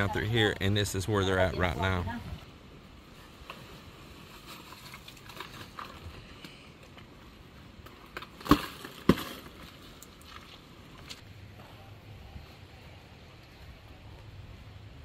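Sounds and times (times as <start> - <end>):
gravel crunching and clicking: 3.2 - 11.8.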